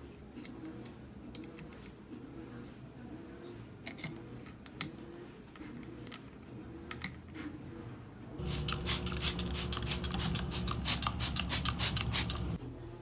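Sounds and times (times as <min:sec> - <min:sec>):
rhythmic scrubbing on counter: 0:08.4 - 0:12.6
steady low hum: 0:08.4 - 0:12.6.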